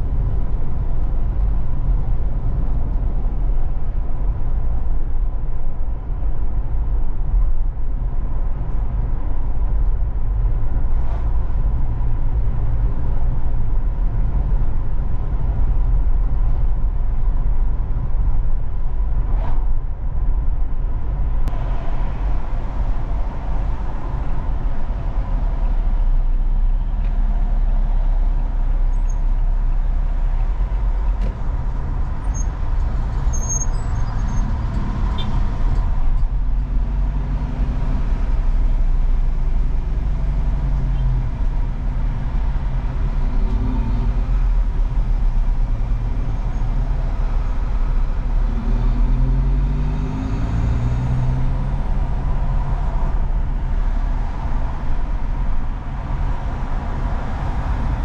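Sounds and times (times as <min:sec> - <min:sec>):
car engine accelerating: 0:30.0 - 0:58.0.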